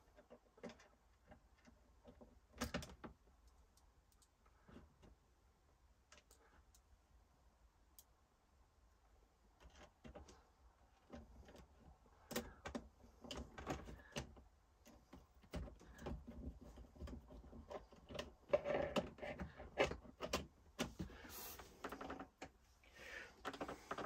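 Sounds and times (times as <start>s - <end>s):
plastic faceplate clicking and scraping: 0.0s - 3.6s, 9.6s - 22.6s, 23.3s - 24.0s.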